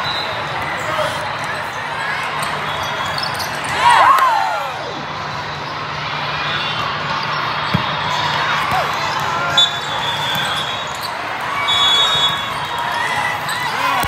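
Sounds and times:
many overlapping voices: 0.0 - 14.0
short whistle blast: 9.5 - 11.0, 11.6 - 12.5.

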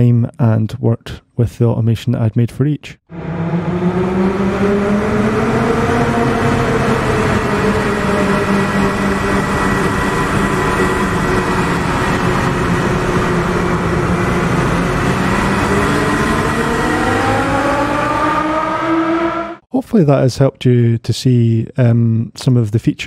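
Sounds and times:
synthesized car engines running: 3.1 - 19.6.

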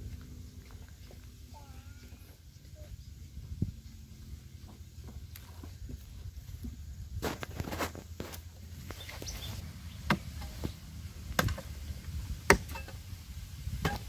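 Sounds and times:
hoe chopping hard earth: 10.0 - 11.8, 12.4 - 13.0, 13.7 - 14.0.

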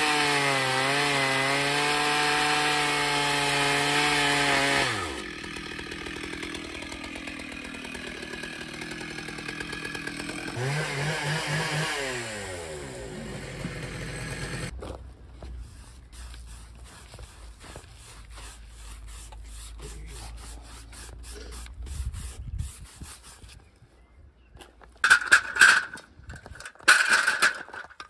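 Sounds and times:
gloved hands brushing wood: 14.8 - 24.1.

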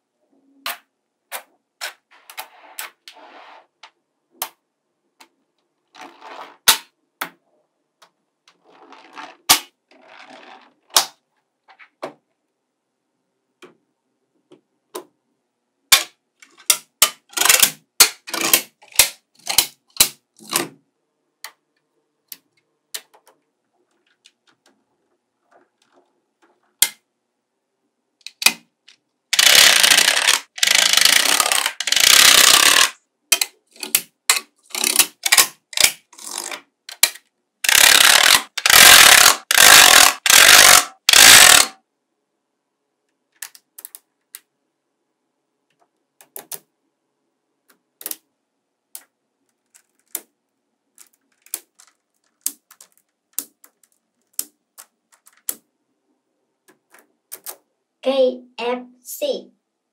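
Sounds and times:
dense rattling of magnetic balls: 8.5 - 11.0, 29.4 - 33.0, 37.7 - 41.7
magnetic balls clicking together: 29.3 - 41.8, 50.9 - 55.7, 56.6 - 57.6.

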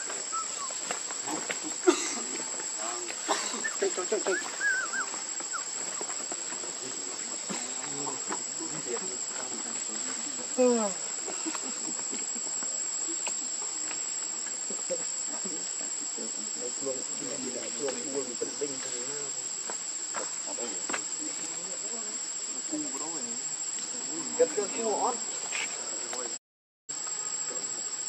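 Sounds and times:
soft wavering calls: 0.0 - 1.0, 3.5 - 6.3
insects droning: 0.0 - 28.0.

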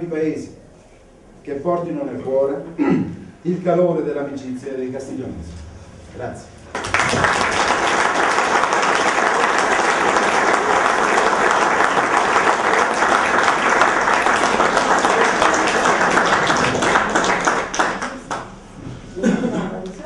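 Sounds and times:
small group applauding: 6.7 - 18.6.

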